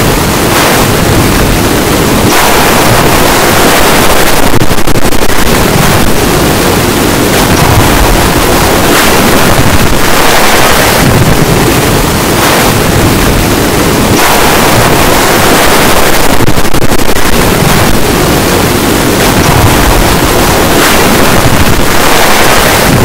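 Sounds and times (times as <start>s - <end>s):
loud distorted rushing noise: 0.0s - 23.0s.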